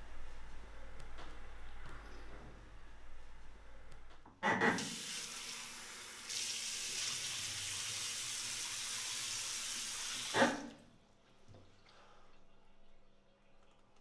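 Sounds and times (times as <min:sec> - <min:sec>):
tap water running into basin: 0:04.8 - 0:10.8.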